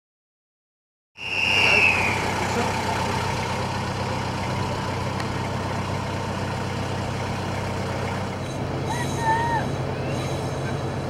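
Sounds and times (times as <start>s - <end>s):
diesel engine idling: 1.2s - 11.0s.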